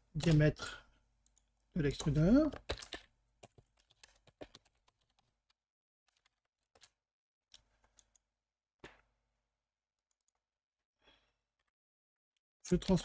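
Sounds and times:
keyboard and mouse clicks: 1.2 - 8.2.

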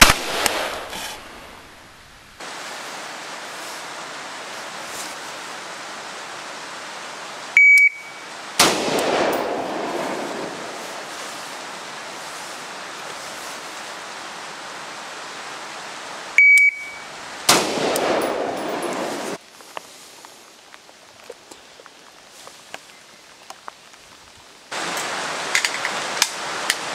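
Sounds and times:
rifle shot with echo: 0.0 - 1.2, 8.6 - 10.8, 17.5 - 19.4
rain hiss: 0.0 - 26.9
shot timer beep: 7.6 - 8.2, 16.4 - 17.0.

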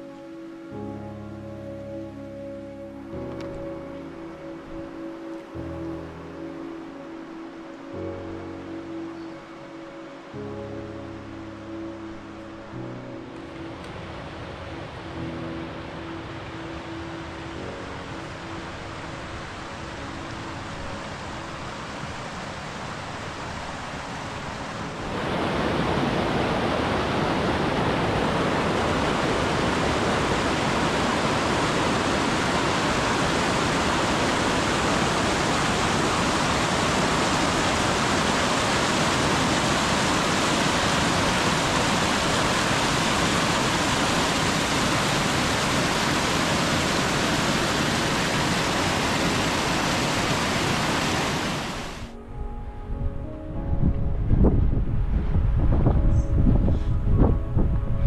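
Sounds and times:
water rushing down cascade: 18.3 - 52.2.

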